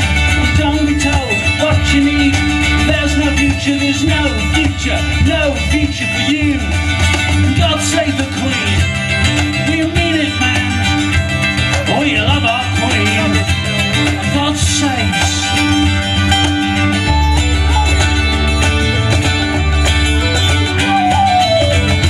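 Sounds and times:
plucked strings: 0:00.0 - 0:22.0
steady bass: 0:00.0 - 0:22.0
gliding melody line: 0:15.4 - 0:22.0.

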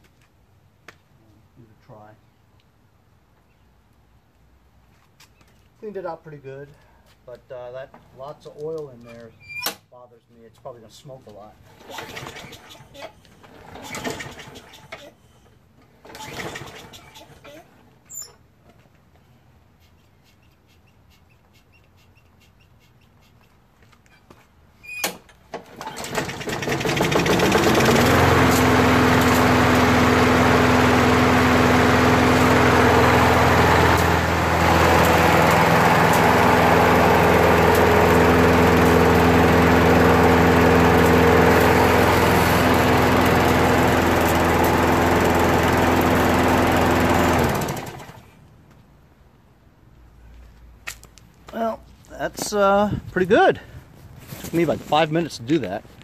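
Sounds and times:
lawn mower engine running: 0:11.6 - 0:12.7, 0:13.4 - 0:14.8, 0:16.0 - 0:17.0, 0:25.5 - 0:48.3
pull-start cord: 0:11.7 - 0:12.8, 0:13.4 - 0:15.0, 0:16.0 - 0:17.0, 0:25.0 - 0:29.6.

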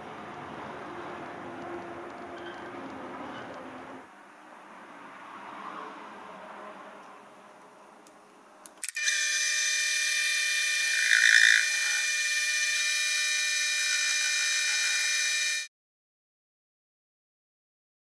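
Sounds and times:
lathe motor whine: 0:09.0 - 0:15.7.

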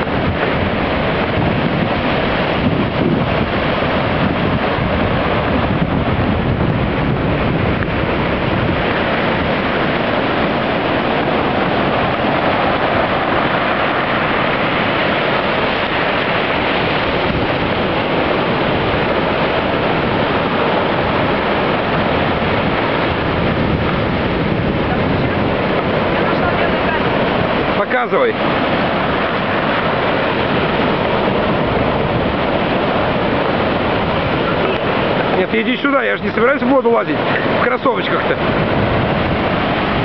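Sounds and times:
waves breaking on shore: 0:00.0 - 0:40.0.

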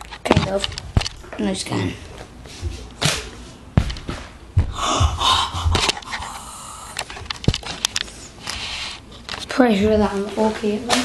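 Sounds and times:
sharp knocks and thumps: 0:03.0 - 0:06.0.

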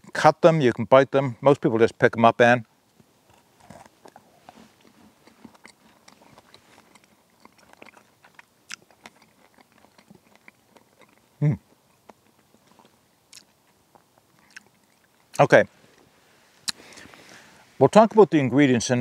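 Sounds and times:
person chewing crunchy bar: 0:03.2 - 0:15.4.

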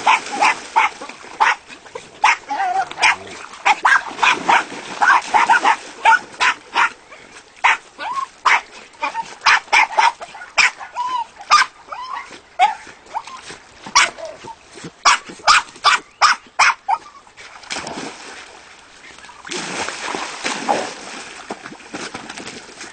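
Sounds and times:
dogs barking and yipping: 0:00.0 - 0:17.2.

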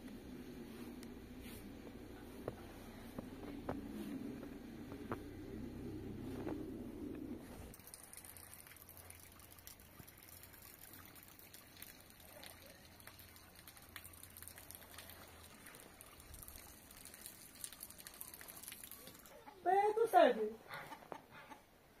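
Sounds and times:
low hum: 0:00.0 - 0:07.8
faint outdoor hiss: 0:00.0 - 0:22.0.

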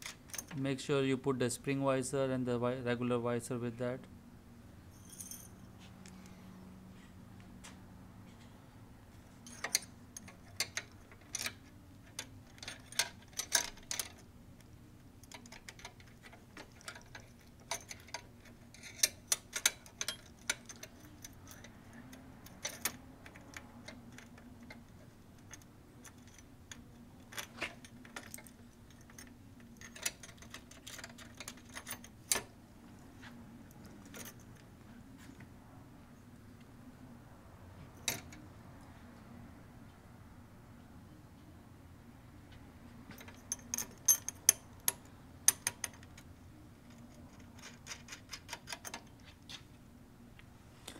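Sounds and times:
metal hardware clinking on metal: 0:04.9 - 0:05.6, 0:09.4 - 0:14.3, 0:15.2 - 0:21.7, 0:22.4 - 0:32.5, 0:43.1 - 0:46.2.

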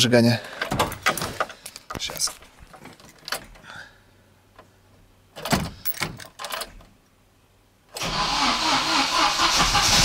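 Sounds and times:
starter cranking engine: 0:08.0 - 0:10.0.

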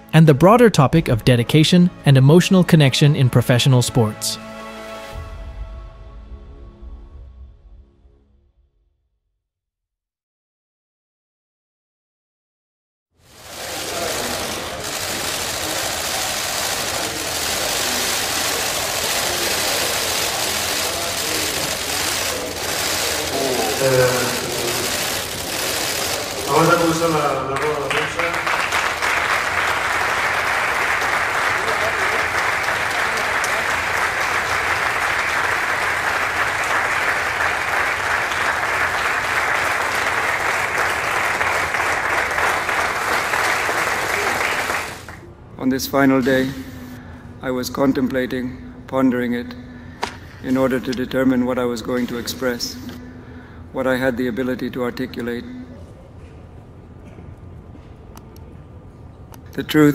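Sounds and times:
crowd applauding: 0:13.3 - 0:45.3.

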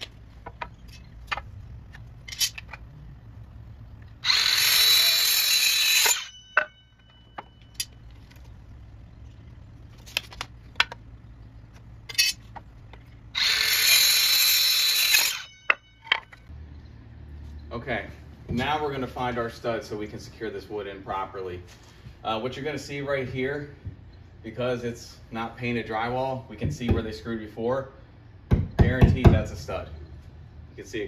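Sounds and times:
circular saw cutting wood: 0:04.1 - 0:06.8, 0:13.3 - 0:16.3
saw blade whining down: 0:04.2 - 0:07.1, 0:13.3 - 0:16.4.

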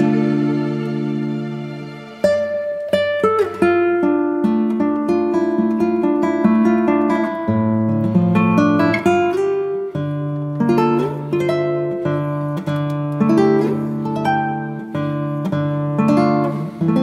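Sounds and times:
acoustic guitar picking: 0:00.0 - 0:17.0.

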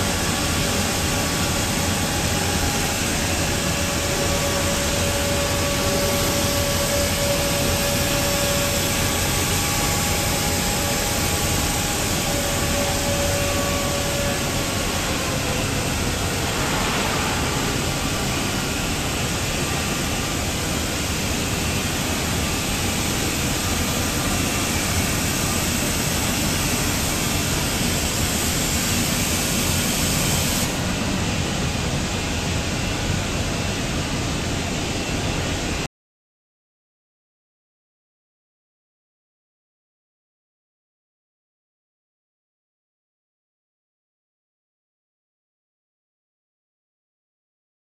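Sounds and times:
sanding machine rushing noise: 0:00.0 - 0:31.0
machine whine: 0:00.0 - 0:35.9.

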